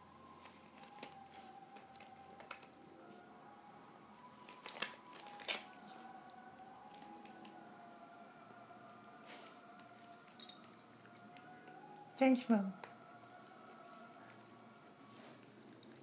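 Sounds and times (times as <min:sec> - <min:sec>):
faint steady tone: 0:00.0 - 0:16.0
dog tearing wrapping: 0:04.4 - 0:06.0.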